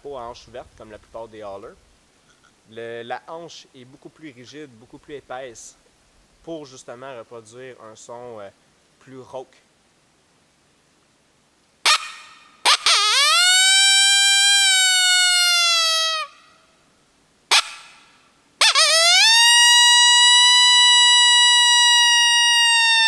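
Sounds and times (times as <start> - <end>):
coyote howler call: 11.9 - 16.6, 17.5 - 23.0.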